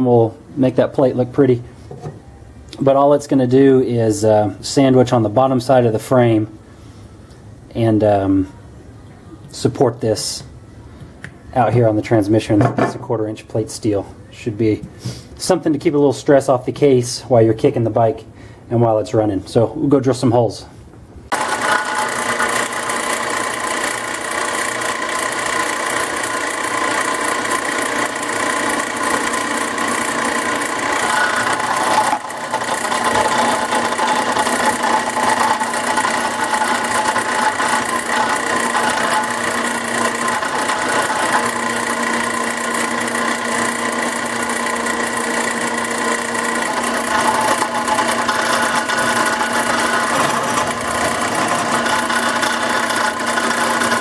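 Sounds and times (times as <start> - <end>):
drill press cutting steel: 21.3 - 54.0.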